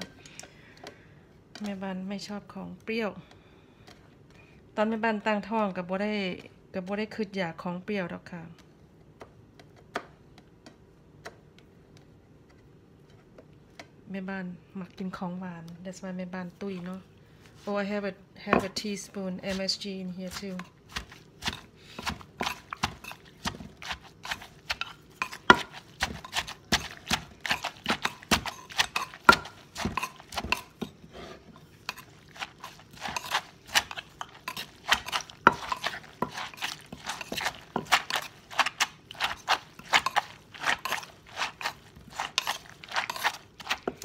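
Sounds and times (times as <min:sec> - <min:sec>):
spoon turning food: 0:19.4 - 0:44.0
wooden pestle pounding in mortar: 0:20.3 - 0:30.9, 0:31.9 - 0:44.0.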